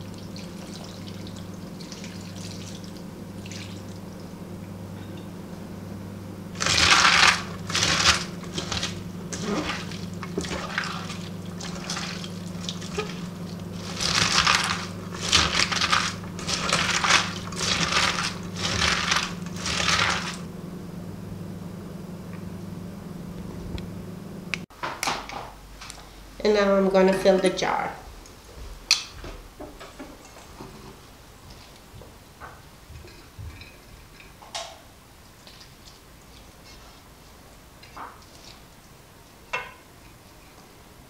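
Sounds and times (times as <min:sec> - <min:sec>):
steady low hum: 0:00.0 - 0:24.7
wet squelching of kneaded vegetables: 0:06.6 - 0:20.5.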